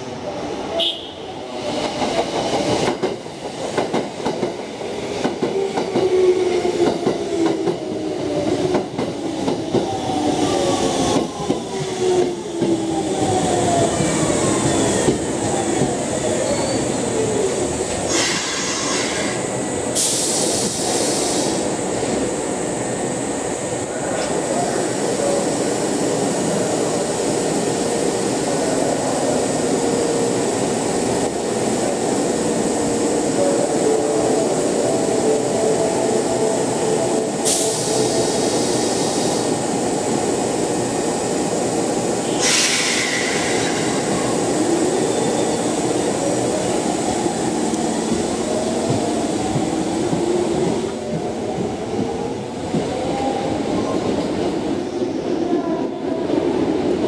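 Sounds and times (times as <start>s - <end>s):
short sharp hisses: 20.0s - 21.6s, 42.4s - 43.6s.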